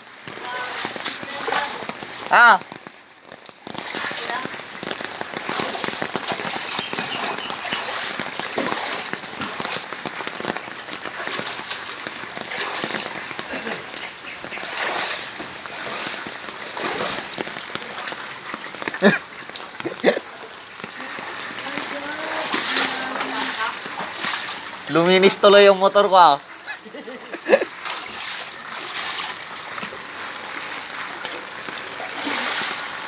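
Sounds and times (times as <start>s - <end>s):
floodwater splashing: 0.0s - 33.0s
rain pattering on water: 0.0s - 33.0s.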